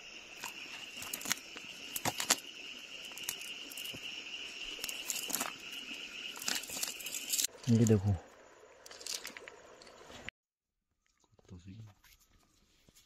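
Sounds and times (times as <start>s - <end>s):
high-pitched insect chorus trilling: 0.0s - 10.3s.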